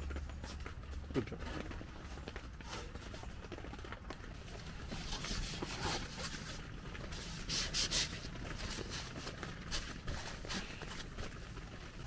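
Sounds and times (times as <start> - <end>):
rubbing and scraping strokes: 4.9 - 11.0.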